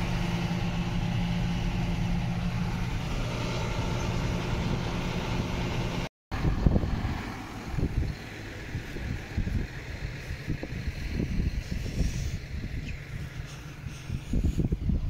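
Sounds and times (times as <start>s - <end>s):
tractor diesel engine running: 0.0s - 15.0s
wind buffeting microphone: 6.4s - 15.0s.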